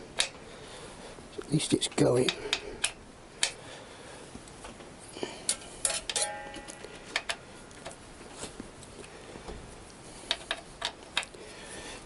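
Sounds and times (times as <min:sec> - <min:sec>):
metal tools clinking on bolts: 0:05.5 - 0:07.4
metallic ring: 0:05.8 - 0:07.1.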